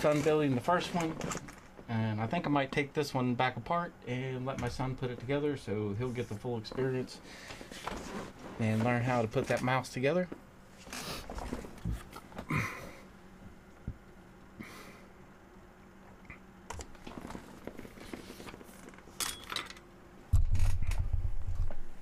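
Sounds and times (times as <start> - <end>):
microphone handling clicks and rustles: 16.7 - 19.1, 20.3 - 22.0.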